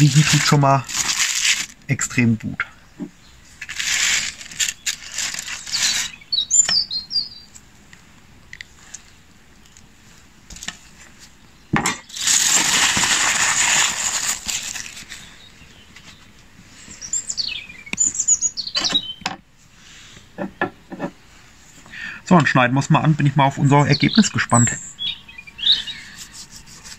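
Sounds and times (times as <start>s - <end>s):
aluminium foil crinkling: 0.0s - 2.0s, 3.6s - 6.2s, 12.0s - 15.5s
bird chirping: 4.6s - 7.6s, 15.0s - 19.4s, 22.9s - 26.9s.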